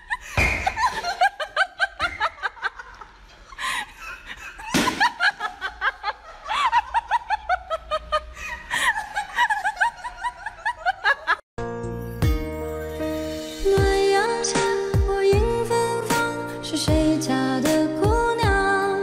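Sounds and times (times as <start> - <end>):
people laughing hard: 0.0 - 11.4
music: 11.6 - 19.0.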